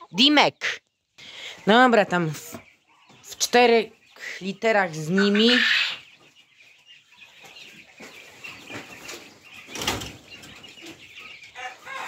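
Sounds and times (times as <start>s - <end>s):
chickens clucking softly: 0.0s - 12.0s
rustling in cages: 4.8s - 12.0s.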